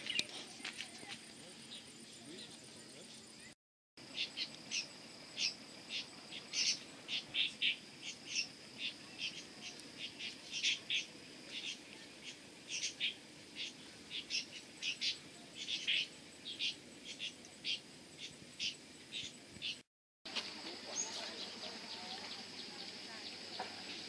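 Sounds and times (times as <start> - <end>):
high-pitched insect drone: 4.0 - 19.4.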